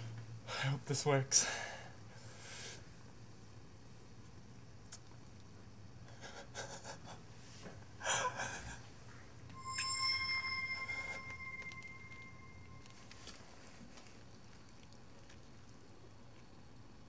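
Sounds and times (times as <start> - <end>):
bell-like ringing tone: 9.5 - 13.2.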